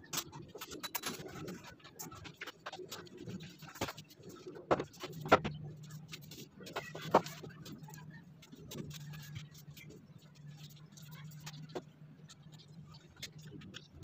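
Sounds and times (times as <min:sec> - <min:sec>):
wooden knocks and clatter: 0:03.6 - 0:07.8.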